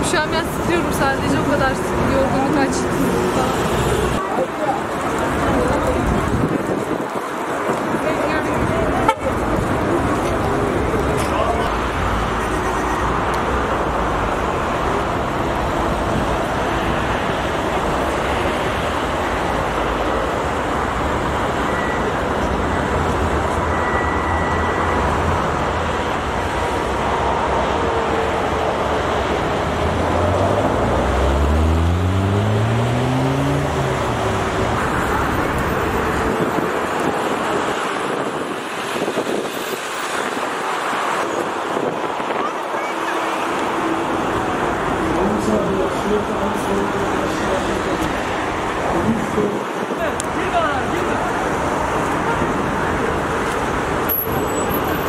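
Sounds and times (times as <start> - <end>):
road traffic noise: 0.0 - 55.0
vehicle engine revving: 29.6 - 34.8.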